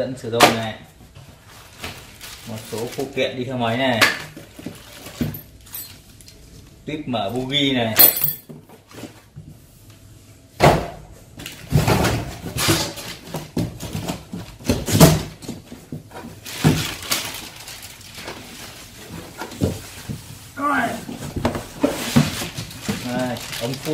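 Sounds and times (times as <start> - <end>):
cardboard rustling and scraping: 11.6 - 23.9.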